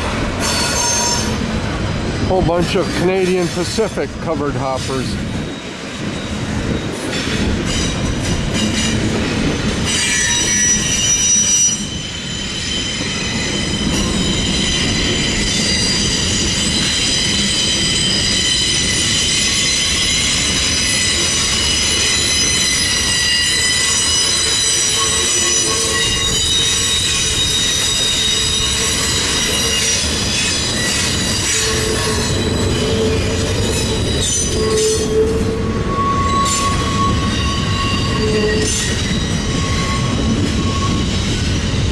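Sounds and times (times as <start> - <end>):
low train rumble: 0.0 - 41.9
train wheels squealing on rails: 0.0 - 41.9
high steady squealing tones: 9.8 - 41.8.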